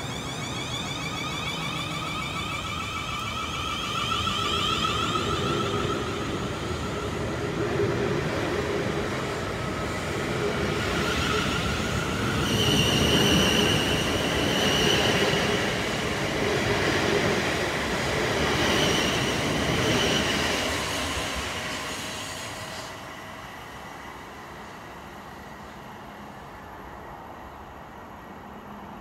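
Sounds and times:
train motor whine: 0.0s - 7.4s, 19.1s - 25.7s
high-pitched whine: 0.0s - 17.6s
train wheels rumbling on rail: 0.0s - 29.0s.

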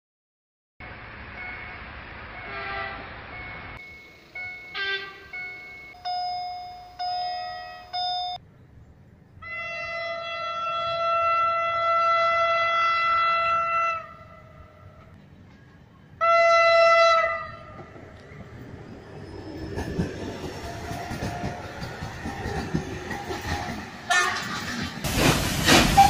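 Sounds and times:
passing train rumbling: 0.8s - 26.0s
train horn blasts: 2.4s - 3.2s, 4.7s - 5.4s, 9.4s - 15.1s, 16.2s - 17.8s, 24.1s - 24.7s
train wheels clattering on rails: 19.3s - 26.0s.

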